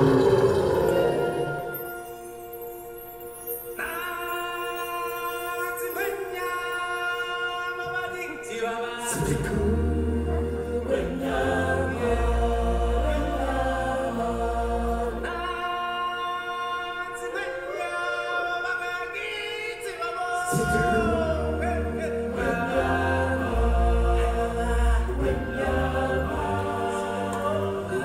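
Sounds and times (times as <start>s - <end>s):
choir singing held chords: 0.0s - 5.9s, 8.5s - 28.0s.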